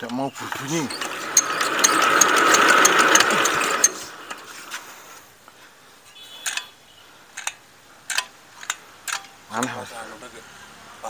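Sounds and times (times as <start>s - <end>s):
diesel engine cranking without firing: 0.0s - 4.9s.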